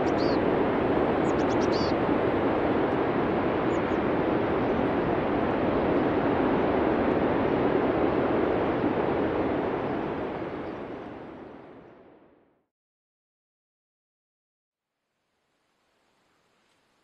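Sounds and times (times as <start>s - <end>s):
steady rushing noise: 0.0s - 12.3s.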